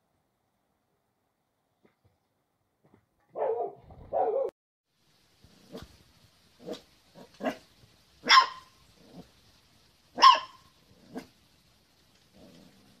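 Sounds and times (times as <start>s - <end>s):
puppy barking: 3.3s - 4.5s, 6.6s - 7.6s, 8.2s - 8.8s, 10.2s - 11.3s.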